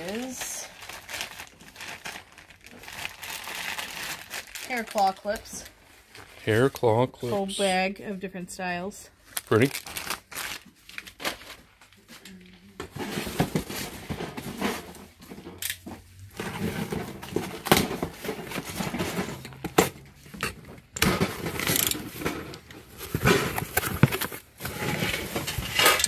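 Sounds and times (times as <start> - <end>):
hand rummaging in bubble wrap: 0.0 - 6.6, 9.2 - 12.3, 22.8 - 25.9
cardboard and tape scraping: 21.0 - 26.0.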